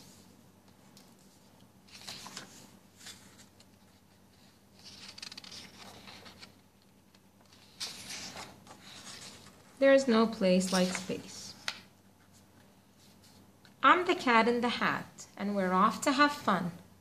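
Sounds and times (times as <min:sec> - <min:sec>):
book pages turning: 0:00.8 - 0:09.6, 0:10.5 - 0:13.4.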